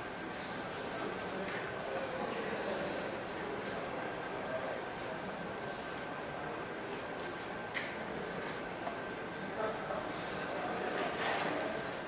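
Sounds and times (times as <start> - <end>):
marker pen strokes on paper: 0.1 - 1.9, 5.2 - 6.2, 10.2 - 12.0.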